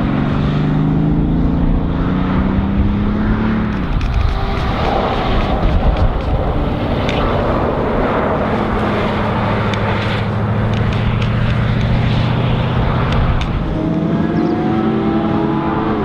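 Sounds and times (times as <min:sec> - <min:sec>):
sharp ticks: 0:08.7 - 0:14.0.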